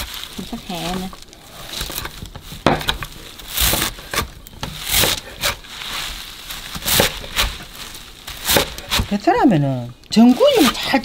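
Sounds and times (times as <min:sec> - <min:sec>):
knife chopping on cutting board: 0:03.6 - 0:05.6, 0:06.8 - 0:07.6, 0:08.4 - 0:09.1.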